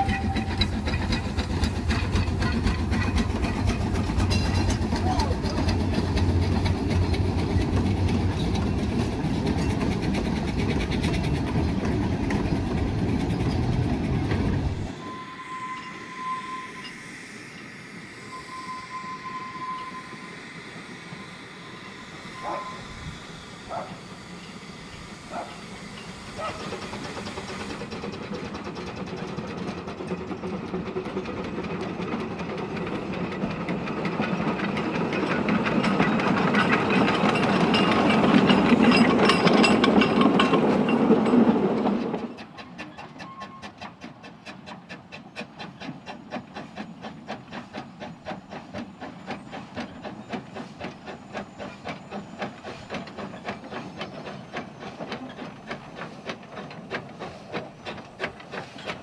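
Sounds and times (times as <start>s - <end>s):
steam exhaust: 0.0s - 30.8s, 42.7s - 59.0s
steam locomotive beats: 0.0s - 59.0s
train wheel clatter: 0.0s - 59.0s
steam leaking: 15.8s - 28.5s.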